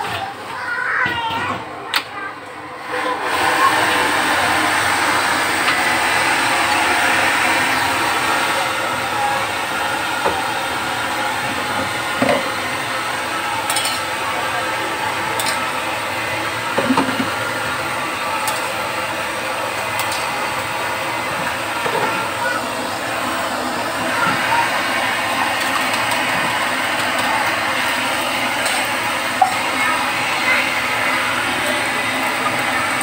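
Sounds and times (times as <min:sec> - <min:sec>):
gas burner roaring: 0:00.0 - 0:33.0.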